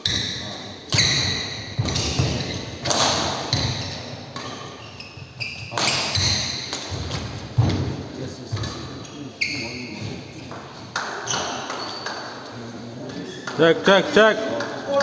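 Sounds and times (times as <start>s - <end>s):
sneaker squeaks on court: 0.0s - 7.7s, 8.5s - 10.2s, 11.2s - 12.4s
racket striking shuttlecock: 0.9s - 4.8s.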